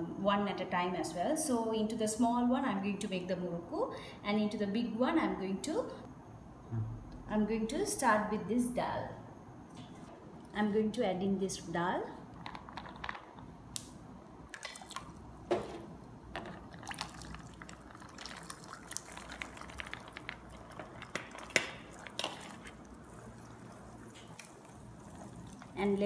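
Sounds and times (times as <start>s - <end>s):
oil popping and crackling: 16.4s - 25.9s
oil sizzling: 16.6s - 26.0s.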